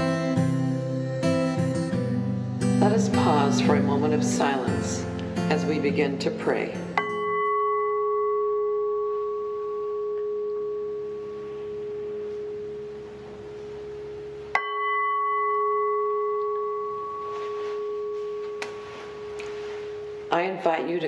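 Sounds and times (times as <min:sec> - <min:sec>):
singing bowl ringing: 0:07.0 - 0:20.5.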